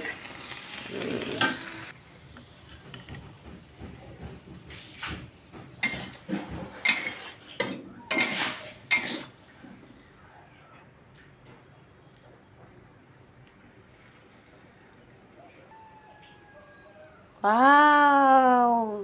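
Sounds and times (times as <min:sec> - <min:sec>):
cabbage sizzling in a wok: 0:00.0 - 0:03.1, 0:04.6 - 0:09.4
metal spatula stirring: 0:05.8 - 0:09.4
spatula scraping ceramic plate: 0:05.8 - 0:09.4.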